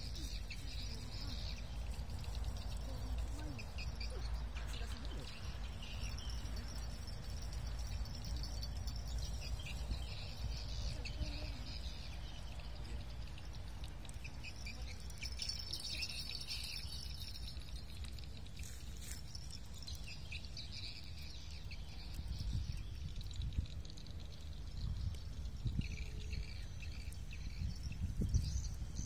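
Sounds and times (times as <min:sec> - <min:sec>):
small birds chirping: 0:00.0 - 0:29.0
wind rumble on microphone: 0:19.3 - 0:29.0.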